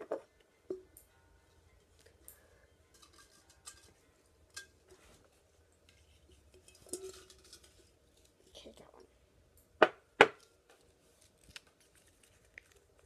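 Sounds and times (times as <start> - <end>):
glass jar knocking and clinking: 6.6 - 7.7.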